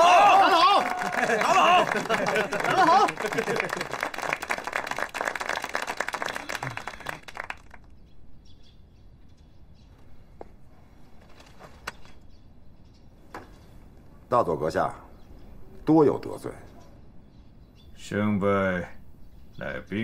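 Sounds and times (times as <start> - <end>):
people clapping: 0.0 - 8.0
faint bird chirps: 7.9 - 20.0.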